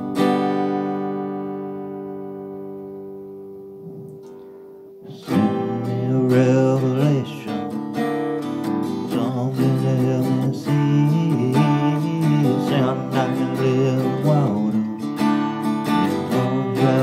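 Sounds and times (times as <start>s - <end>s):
acoustic guitar strumming: 0.0s - 17.0s
man singing: 5.1s - 17.0s.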